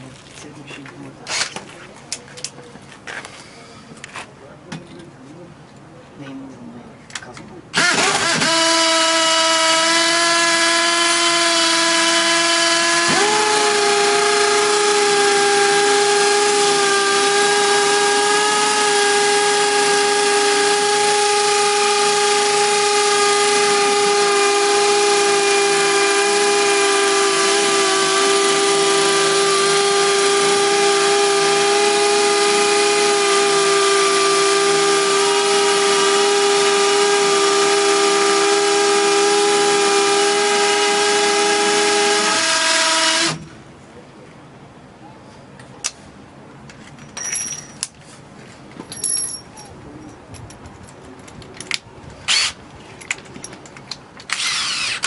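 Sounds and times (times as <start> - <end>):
cordless drills whining: 7.8 - 43.4, 52.3 - 52.6, 54.2 - 55.0
drill grinding into concrete: 7.8 - 43.4, 52.3 - 52.6, 54.2 - 55.0.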